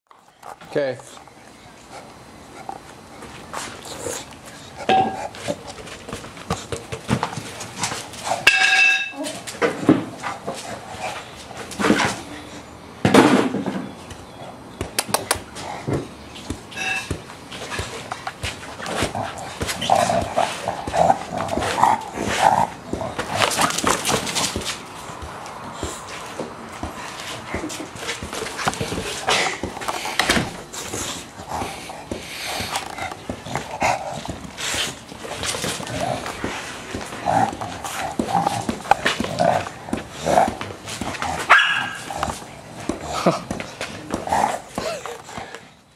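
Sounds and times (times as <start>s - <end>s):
ball knocking and scraping on concrete: 2.6s - 12.4s, 13.1s - 45.7s
dog barking and grunting: 18.7s - 25.2s, 26.9s - 45.6s.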